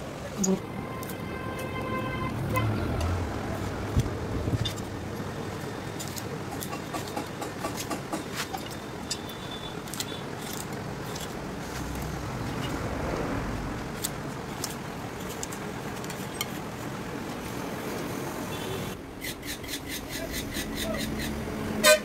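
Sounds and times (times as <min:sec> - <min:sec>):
road traffic noise: 0:00.0 - 0:22.0
vehicle passing: 0:00.5 - 0:05.0, 0:11.6 - 0:14.2.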